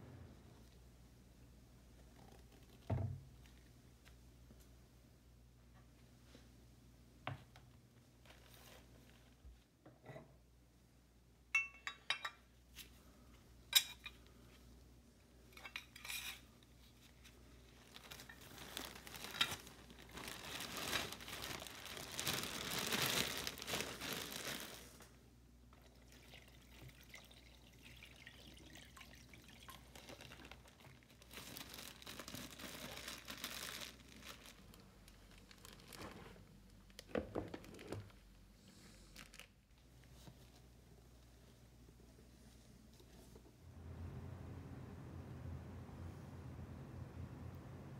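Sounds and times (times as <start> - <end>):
thin plastic bag crinkling: 16.8 - 25.1, 29.6 - 38.3, 39.0 - 40.3
liquid pouring into plastic bag: 17.8 - 25.0, 25.8 - 36.0
liquid trickling: 25.8 - 30.9.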